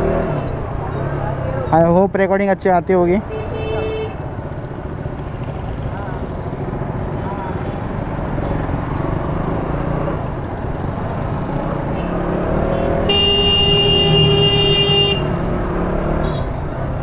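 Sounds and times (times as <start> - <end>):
traffic noise: 0.0 - 17.0
vehicle horn blast: 12.7 - 15.3.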